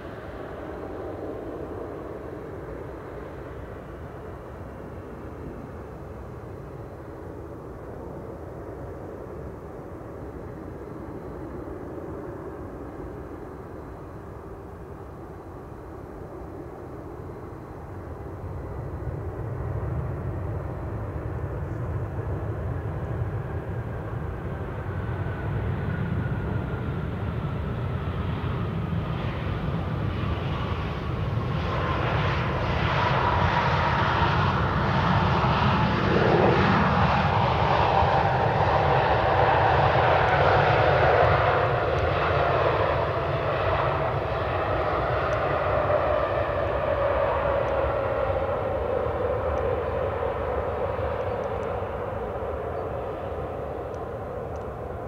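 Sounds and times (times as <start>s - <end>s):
jet engines rumbling and whining: 0.0s - 55.0s.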